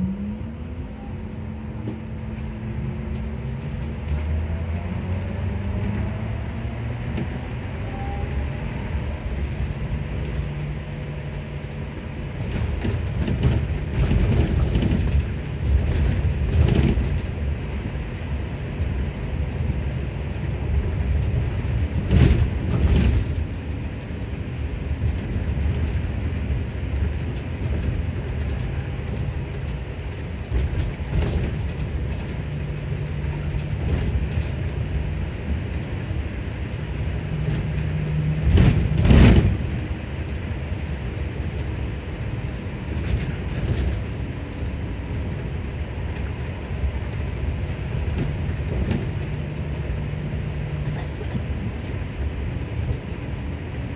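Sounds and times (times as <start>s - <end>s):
low hum: 0.0s - 11.4s
road noise: 0.0s - 53.9s.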